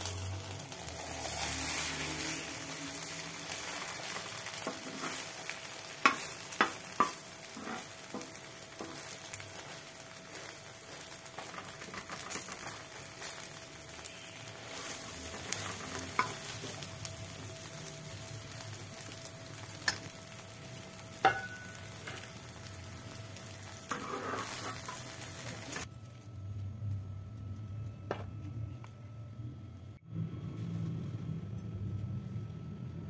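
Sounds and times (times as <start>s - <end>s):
omelette sizzling on a griddle: 0.0s - 27.7s
metal spatula scraping griddle: 0.9s - 13.4s, 14.6s - 16.8s, 23.7s - 25.8s
low hum: 24.9s - 33.0s.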